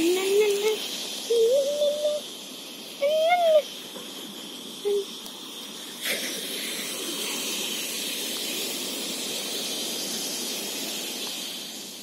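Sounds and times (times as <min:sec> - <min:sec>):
sea surf breaking on beach: 0:00.0 - 0:12.0.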